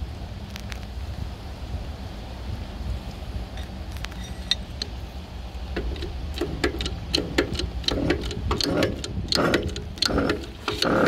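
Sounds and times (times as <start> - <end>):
metallic clicks: 3.6 - 5.0, 5.7 - 11.0
short squeaks: 3.6 - 5.0.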